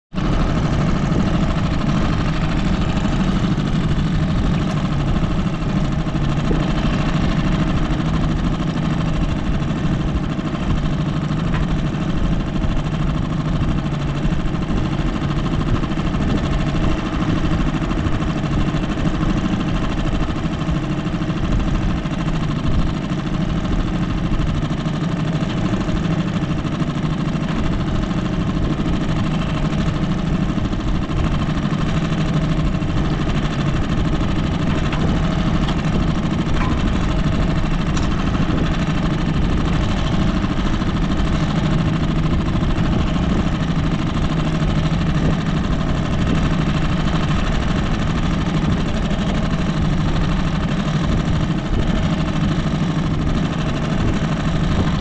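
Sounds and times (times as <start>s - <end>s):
engine running steadily: 0.0s - 55.0s.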